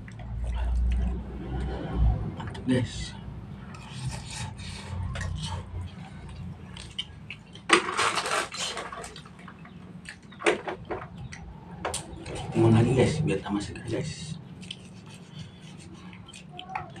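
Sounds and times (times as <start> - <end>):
man chewing noodles: 0.0 - 1.8, 3.6 - 10.4, 14.4 - 17.0.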